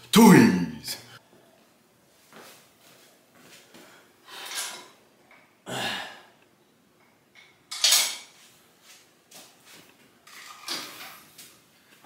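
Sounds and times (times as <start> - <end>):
man breathing heavily: 5.7 - 6.4.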